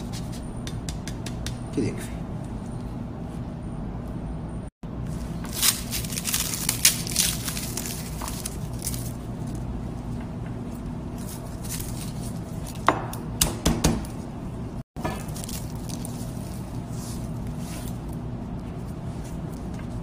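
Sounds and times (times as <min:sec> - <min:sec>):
garlic bulb cracking apart: 0:05.6 - 0:09.2.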